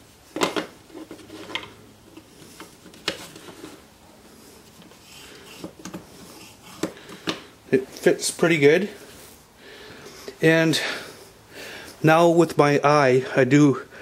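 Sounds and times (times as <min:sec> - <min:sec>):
wood scraping on wood: 0:00.9 - 0:07.4.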